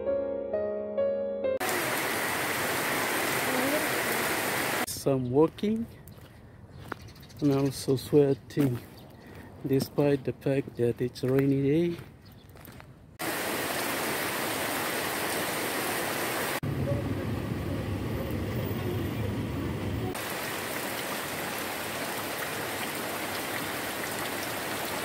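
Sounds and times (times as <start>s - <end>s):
rain hissing: 1.6s - 4.9s, 13.2s - 16.7s, 19.2s - 25.0s.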